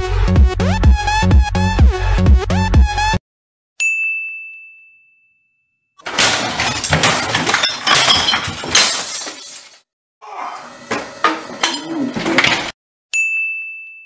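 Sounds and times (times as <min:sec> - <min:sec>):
high ding: 0:03.8 - 0:05.9, 0:13.1 - 0:14.0
stick smashing things: 0:06.0 - 0:09.8.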